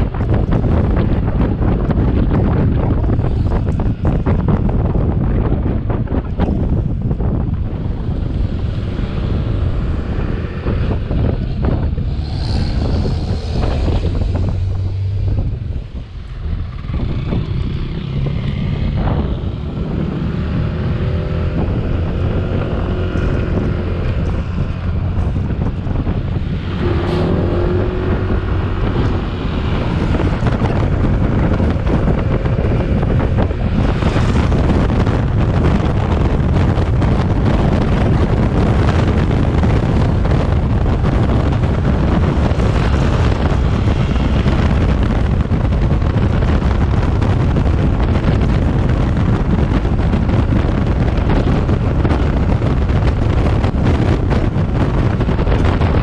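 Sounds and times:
road noise: 0:00.0 - 0:56.0
wind buffeting microphone: 0:00.0 - 0:56.0.

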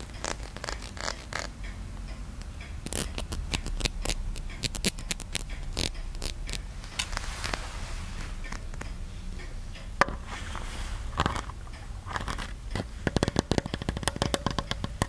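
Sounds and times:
sharp tapping clicks: 0:00.0 - 0:06.7, 0:11.5 - 0:15.0
short scratching scrapes: 0:02.9 - 0:08.8, 0:10.1 - 0:12.6.

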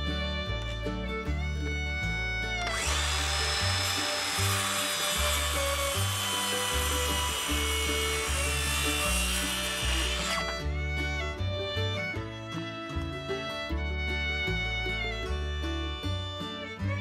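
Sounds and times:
background music: 0:00.0 - 0:17.0
power tool working wood: 0:02.6 - 0:10.6.

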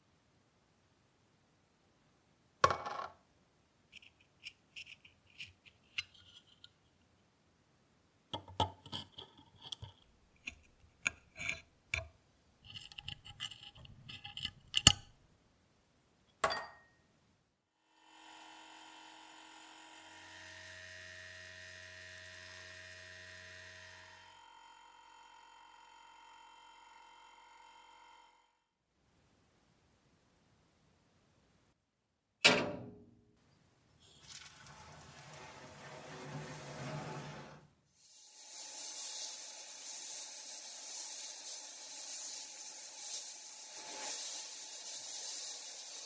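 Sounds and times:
small metal clicks and taps: 0:12.7 - 0:15.1.

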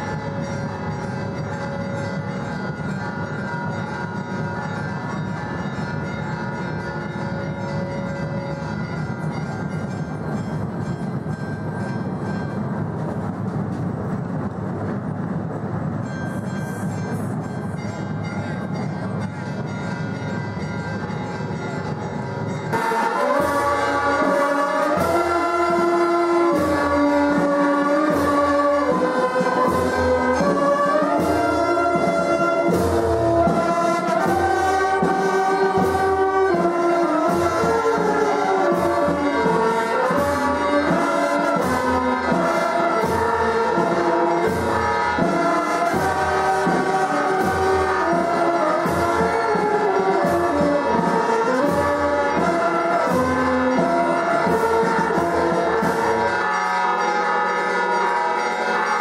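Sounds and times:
brass band playing: 0:22.7 - 0:59.0.

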